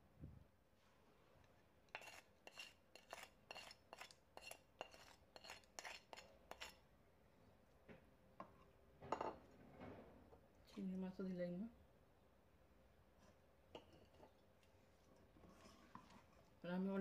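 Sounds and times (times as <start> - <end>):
spatula scraping ceramic plate: 1.9 - 6.8, 15.4 - 16.5.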